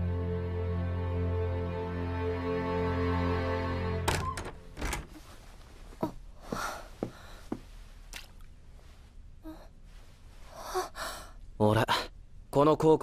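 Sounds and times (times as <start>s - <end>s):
background music: 0.0s - 5.0s.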